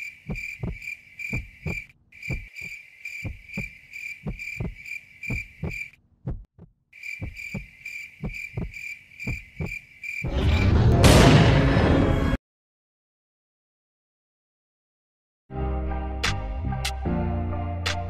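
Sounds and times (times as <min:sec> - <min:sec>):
crickets chirping: 0:00.0 - 0:06.0, 0:07.0 - 0:10.3
slow heartbeat thumping: 0:00.2 - 0:09.8.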